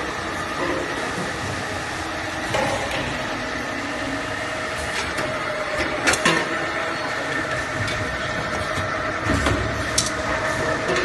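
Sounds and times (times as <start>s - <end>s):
conveyor belt humming: 0.0s - 11.0s.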